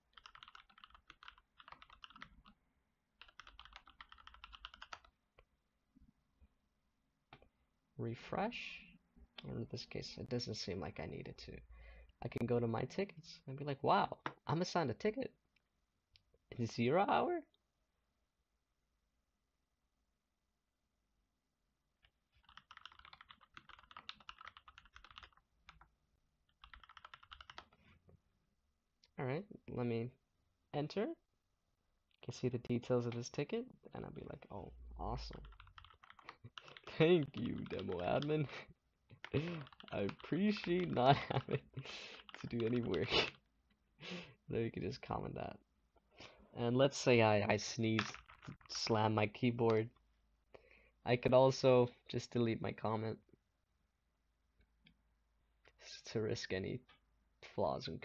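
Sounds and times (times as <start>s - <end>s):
faint typing on keyboard: 0.0s - 2.6s, 3.2s - 5.5s, 22.0s - 28.0s, 35.1s - 43.8s, 47.8s - 49.0s.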